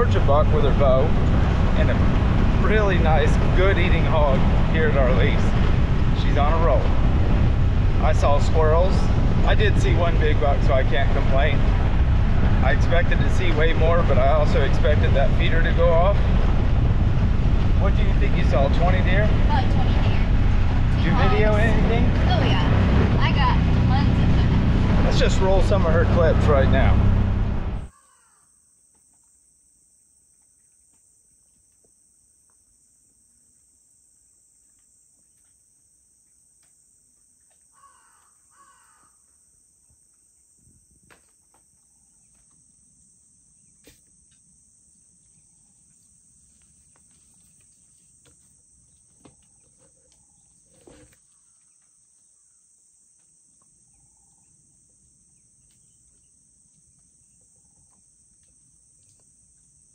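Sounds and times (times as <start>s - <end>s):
high insect drone: 0.0s - 27.3s, 27.9s - 59.9s
crow cawing: 27.9s - 28.6s, 37.7s - 39.3s.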